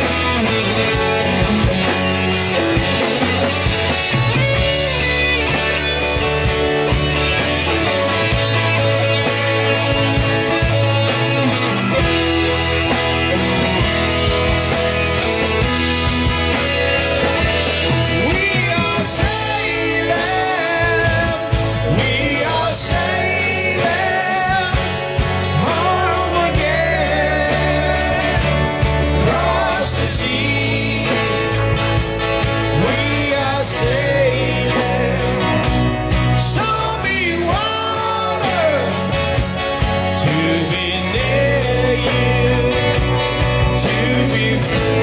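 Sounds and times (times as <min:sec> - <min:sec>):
rock band playing: 0:00.0 - 0:45.0
man singing: 0:16.4 - 0:31.7, 0:32.6 - 0:39.4, 0:40.0 - 0:45.0.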